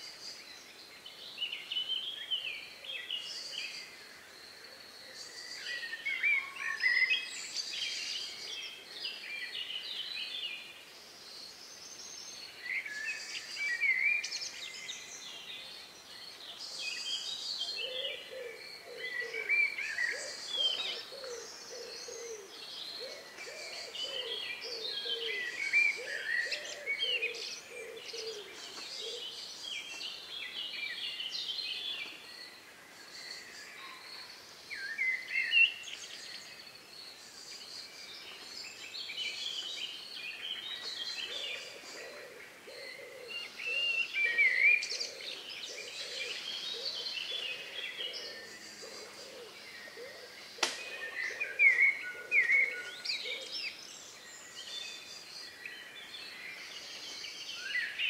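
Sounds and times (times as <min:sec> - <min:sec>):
songbirds singing: 0:00.0 - 0:58.0.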